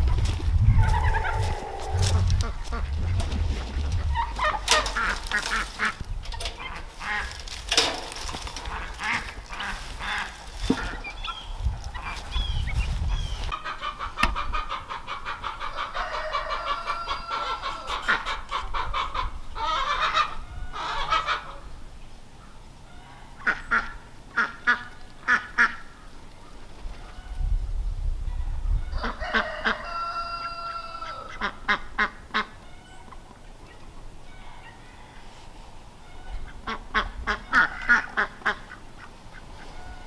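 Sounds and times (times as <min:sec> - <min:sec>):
ducks quacking: 0:00.8 - 0:12.5, 0:13.1 - 0:21.7, 0:23.0 - 0:25.9, 0:31.1 - 0:35.2, 0:36.0 - 0:40.0.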